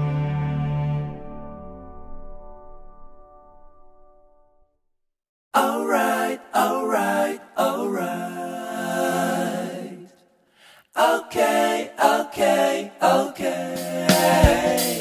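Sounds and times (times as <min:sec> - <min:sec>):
unaccompanied singing: 0:05.6 - 0:10.3, 0:10.9 - 0:15.0.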